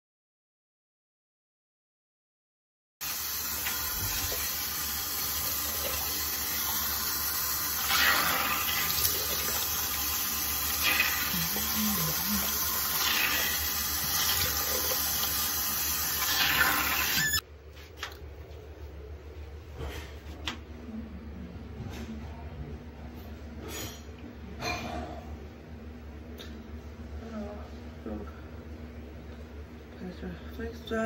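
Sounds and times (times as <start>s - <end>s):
tap water running into sink: 3.0s - 17.4s.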